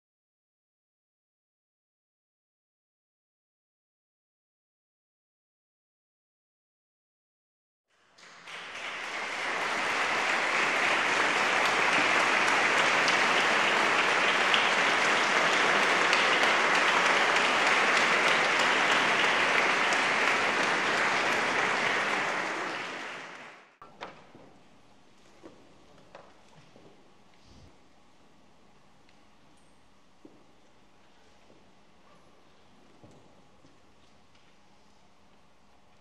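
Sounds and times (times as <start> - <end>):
audience applauding: 8.0 - 23.8.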